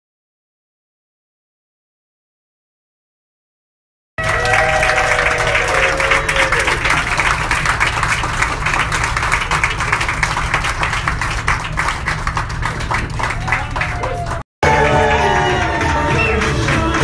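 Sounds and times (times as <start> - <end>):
crowd applauding: 4.2 - 17.0.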